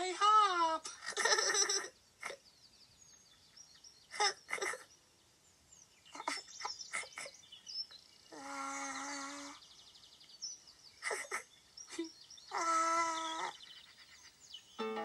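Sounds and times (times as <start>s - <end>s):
birds chirping: 0.0s - 15.0s
held musical note: 14.8s - 15.0s.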